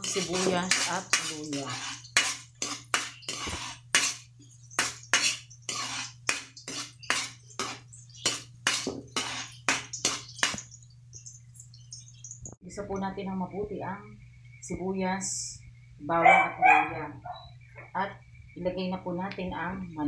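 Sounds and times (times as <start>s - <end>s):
metal ladle scraping wok: 0.0s - 10.7s
steady low hum: 0.0s - 20.0s.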